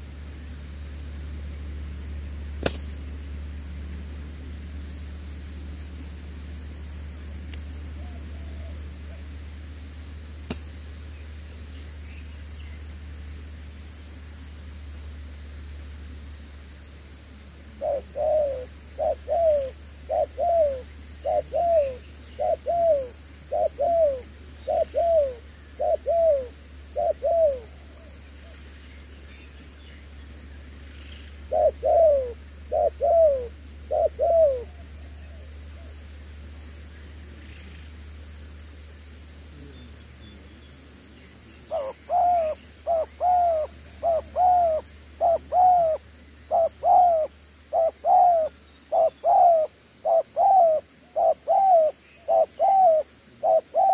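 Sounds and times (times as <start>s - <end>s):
dove cooing: 8.0s - 9.2s, 17.7s - 28.6s, 31.4s - 35.9s, 41.6s - 53.9s.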